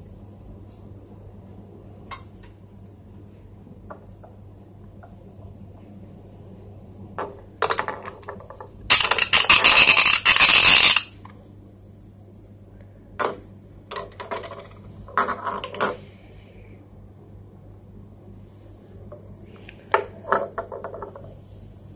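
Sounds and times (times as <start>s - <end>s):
toy fishing reel clicking: 8.9s - 11.1s.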